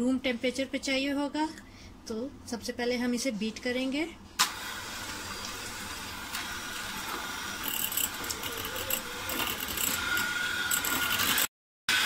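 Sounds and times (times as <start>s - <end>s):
electric hand mixer whirring: 4.6s - 12.0s.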